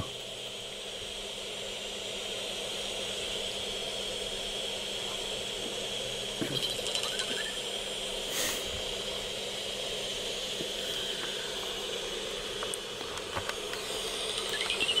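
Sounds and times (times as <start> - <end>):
steady hiss: 0.0 - 15.0
constant high tone: 6.4 - 7.9, 13.7 - 15.0.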